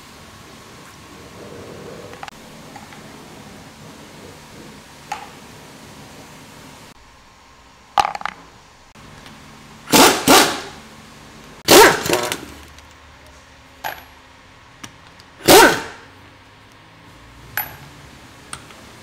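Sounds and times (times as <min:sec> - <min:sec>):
pneumatic impact wrench bursts: 0:09.9 - 0:10.8, 0:11.7 - 0:12.6, 0:15.4 - 0:16.1.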